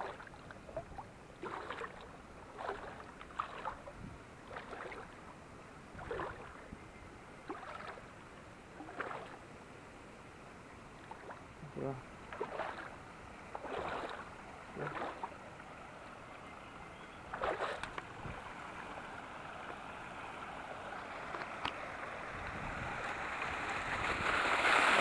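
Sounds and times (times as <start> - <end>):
splashing steps through water: 0.0 - 5.2, 6.0 - 6.7, 7.5 - 8.1, 8.8 - 9.4, 11.0 - 11.4, 12.3 - 15.4, 17.3 - 18.1
stream water running over rocks: 0.0 - 6.8, 7.4 - 25.0.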